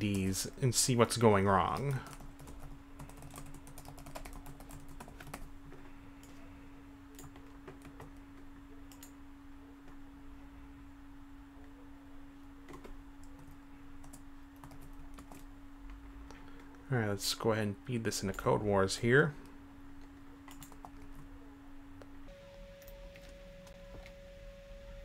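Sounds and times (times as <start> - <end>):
steady low hum: 0.0 - 25.0
typing on keyboard: 1.6 - 5.5, 12.7 - 15.4, 20.5 - 21.2.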